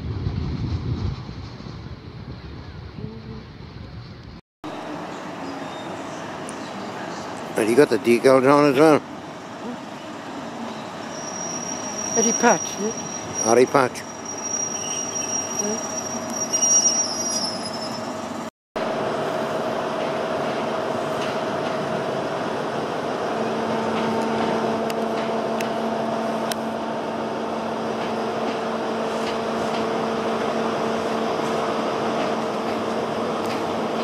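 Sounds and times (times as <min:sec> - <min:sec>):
diesel train engine drone: 0:00.0 - 0:34.0.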